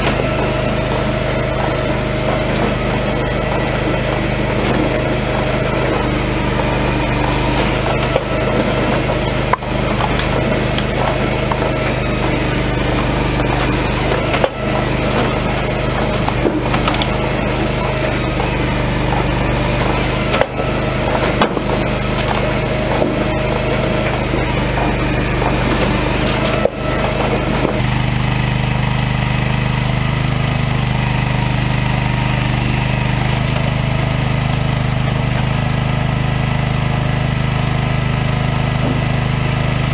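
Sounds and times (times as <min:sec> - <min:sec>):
sharp knocks: 0:00.0 - 0:27.9, 0:38.7 - 0:39.6
engine hum: 0:00.0 - 0:39.9
wood cracking and splintering: 0:00.0 - 0:39.9.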